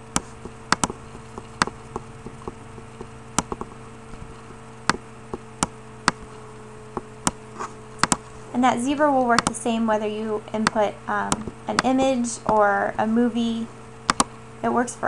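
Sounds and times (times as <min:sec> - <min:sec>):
computer mouse clicking: 0:00.0 - 0:06.4, 0:08.0 - 0:08.3, 0:09.4 - 0:09.6, 0:14.1 - 0:14.3
low electrical hum: 0:00.0 - 0:15.0.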